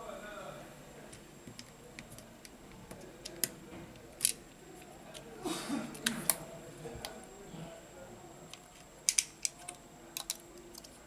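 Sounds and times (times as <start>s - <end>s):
small parts clicking and tapping: 1.1s - 5.3s, 8.5s - 11.0s.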